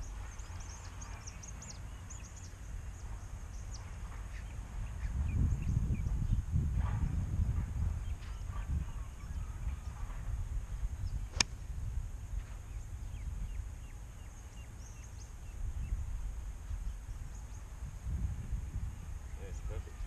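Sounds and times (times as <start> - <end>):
birds chirping: 0.0 - 6.4
wind rumble on microphone: 0.0 - 20.0
golf club striking ball: 11.3 - 11.6.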